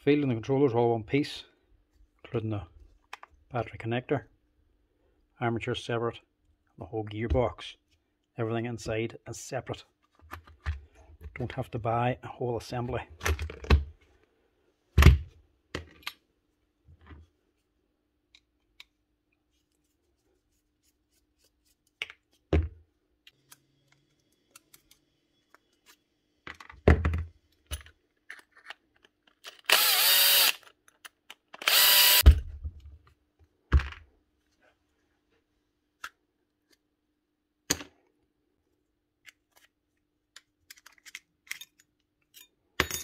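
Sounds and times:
power drill running: 29.7 - 30.6, 31.6 - 32.2.

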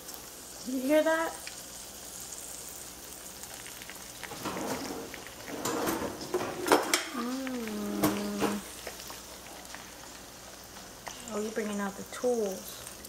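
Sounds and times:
food sizzling and crackling: 0.0 - 13.0
person humming: 7.1 - 8.7.

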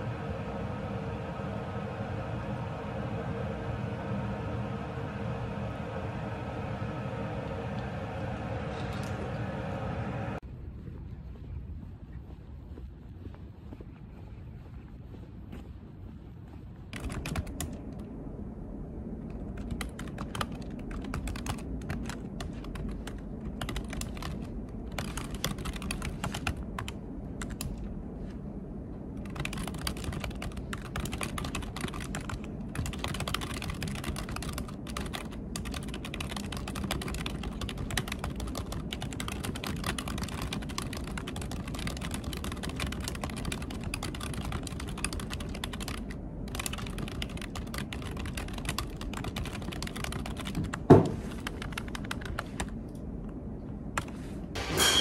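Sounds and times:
low room hum: 0.0 - 55.0
keyboard typing: 16.9 - 17.8, 19.3 - 27.8, 29.2 - 52.7.

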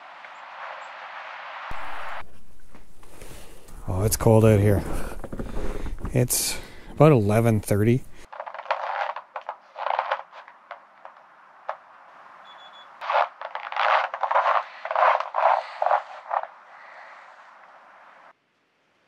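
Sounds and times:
snow crunching: 0.0 - 18.3
thermometer beep: 12.4 - 12.9.

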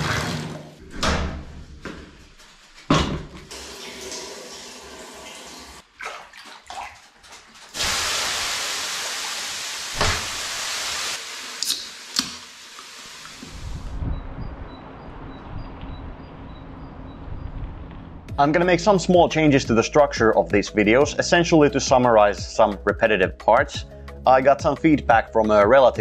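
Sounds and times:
water running from a tap: 3.5 - 13.6
steam hissing off hot stones: 7.8 - 13.4.

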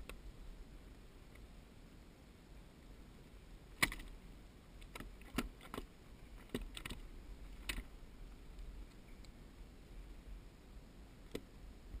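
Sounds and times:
faint hiss: 0.0 - 12.0
clicks and knocks on plastic kayak: 4.8 - 7.0.

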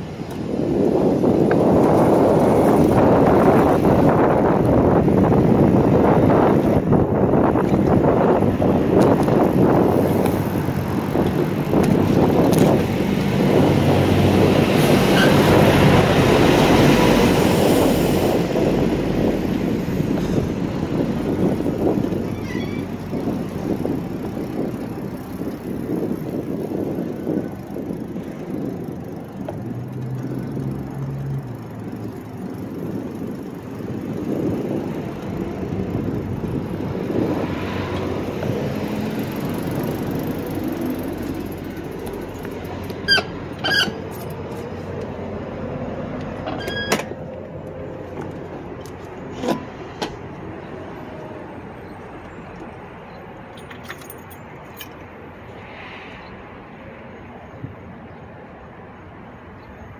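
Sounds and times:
wind buffeting microphone: 0.0 - 53.5.

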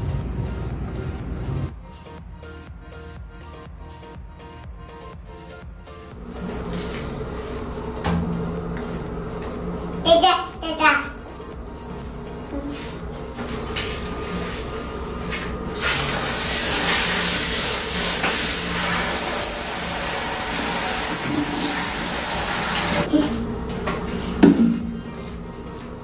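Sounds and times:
shower water spraying: 6.2 - 10.1, 12.7 - 23.1.

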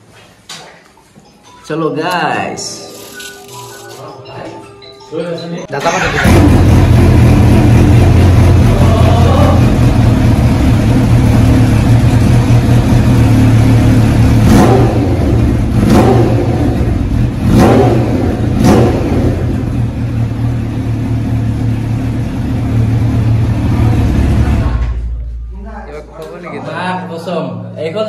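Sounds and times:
motorcycle engine idling: 6.0 - 25.4.

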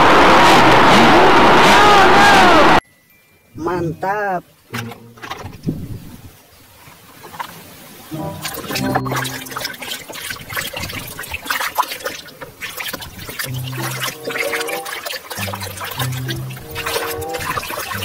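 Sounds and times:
splashing in soapy water: 6.8 - 18.0.

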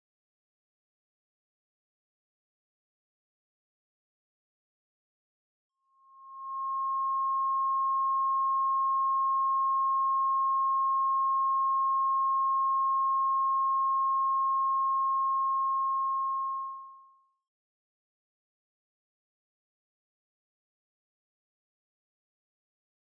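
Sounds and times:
steady sine tone: 5.8 - 17.3.

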